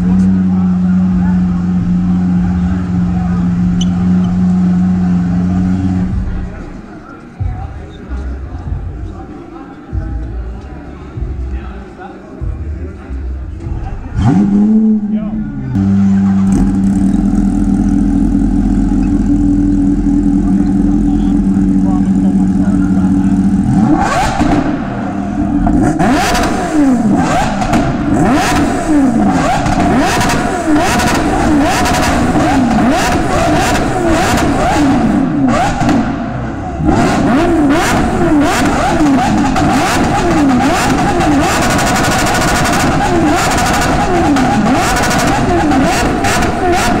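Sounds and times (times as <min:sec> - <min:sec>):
motorcycle engine revving: 0:13.5 - 0:47.0.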